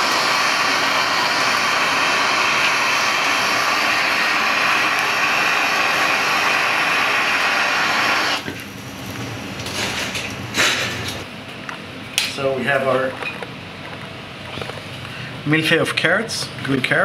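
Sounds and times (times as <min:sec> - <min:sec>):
blowtorch flame rushing: 0:00.0 - 0:11.3.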